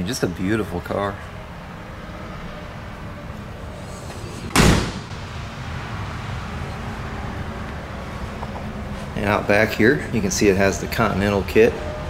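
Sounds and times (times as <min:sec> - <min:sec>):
car door slamming: 0:04.4 - 0:05.2.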